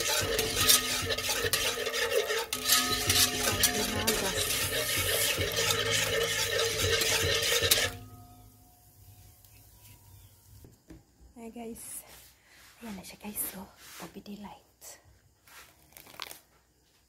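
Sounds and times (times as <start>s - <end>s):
whisk scraping in a pot: 0.0s - 8.2s.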